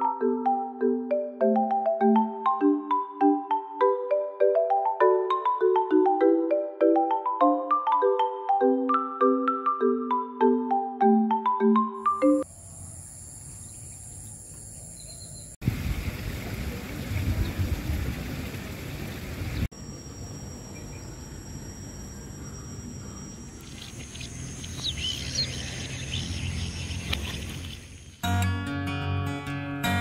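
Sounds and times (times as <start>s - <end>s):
bird chirps: 12.2s - 15.6s, 20.0s - 28.3s
high insect trill: 12.4s - 15.6s, 19.7s - 28.3s.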